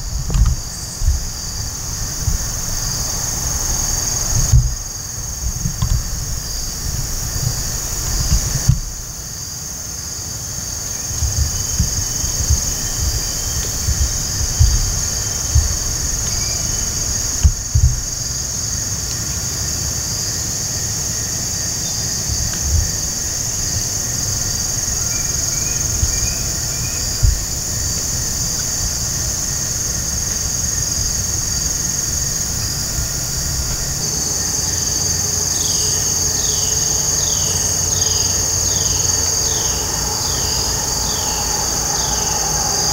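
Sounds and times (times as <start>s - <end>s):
low thumps on microphone: 0.0s - 9.2s, 11.0s - 18.3s, 22.3s - 29.1s
insects chorus: 0.0s - 42.9s.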